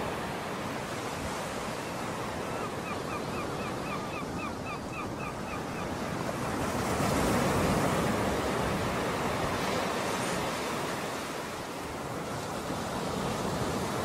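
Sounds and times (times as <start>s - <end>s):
surf washing on beach: 0.0s - 2.8s, 5.8s - 14.0s.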